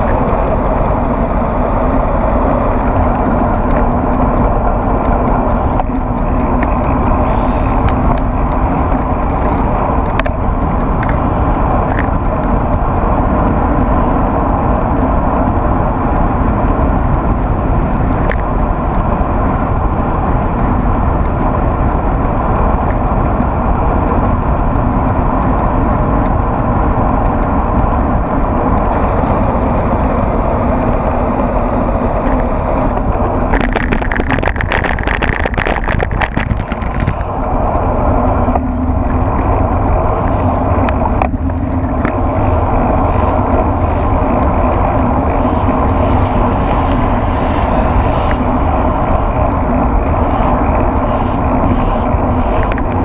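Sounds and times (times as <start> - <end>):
wind and road noise: 0.0 - 53.0.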